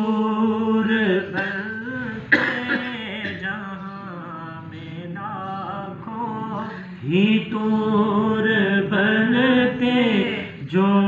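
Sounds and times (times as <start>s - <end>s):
man chanting: 0.0s - 11.0s.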